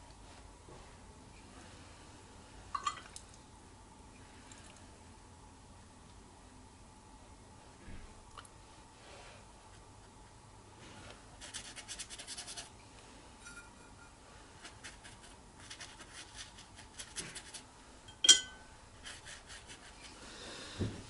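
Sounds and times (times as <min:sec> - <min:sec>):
brush dabbing on paper: 0:11.4 - 0:12.7, 0:14.6 - 0:17.6, 0:19.0 - 0:20.2
sharp ringing clink: 0:18.1 - 0:18.6.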